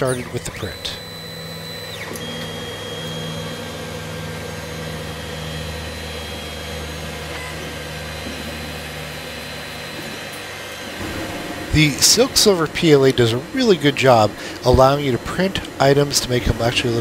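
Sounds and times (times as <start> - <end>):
faint high whine: 0.0 - 2.6, 10.8 - 16.3
printer motors and fans humming: 0.0 - 17.0.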